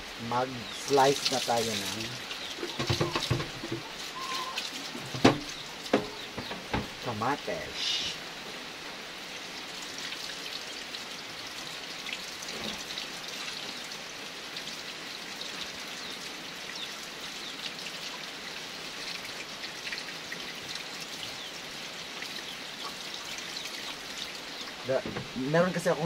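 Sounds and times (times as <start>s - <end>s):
tap water splashing into sink: 1.1s - 7.0s.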